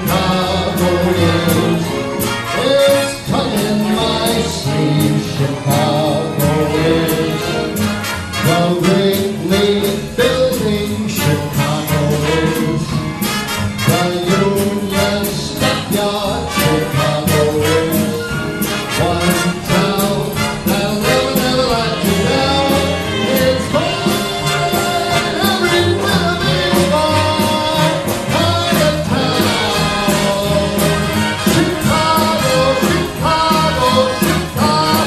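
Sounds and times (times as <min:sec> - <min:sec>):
big band playing swing: 0:00.0 - 0:35.0.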